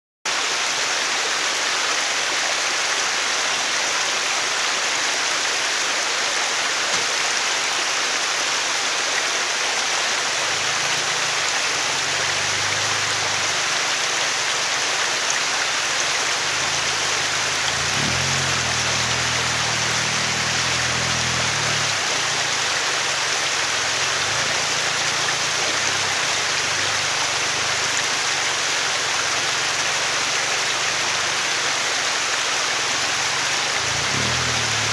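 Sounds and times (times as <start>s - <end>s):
stream rushing over boulders: 0.3s - 34.9s
off-road vehicle engine: 8.9s - 34.9s.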